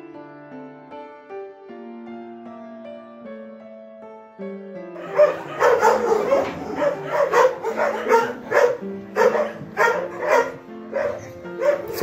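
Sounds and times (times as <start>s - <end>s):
soft piano music: 0.0s - 12.0s
dog barking rapidly: 5.0s - 12.0s.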